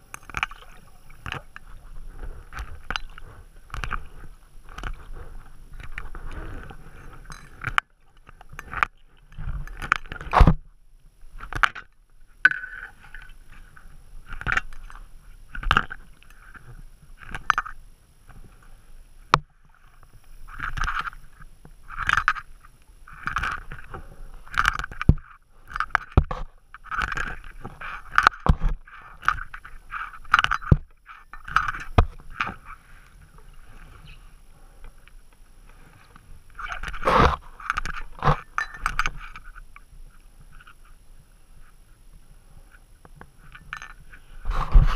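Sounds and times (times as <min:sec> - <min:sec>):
knife sawing net underwater: 0:00.0 - 0:10.6, 0:35.7 - 0:39.6.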